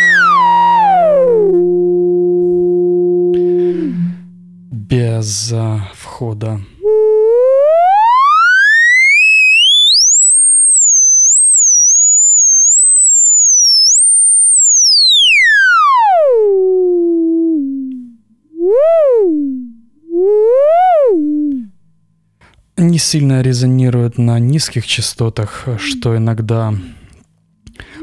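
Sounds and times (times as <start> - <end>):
whistling sine tone sweeping pitch: 0.0 - 4.8, 6.8 - 18.0, 18.6 - 21.7, 25.5 - 26.2.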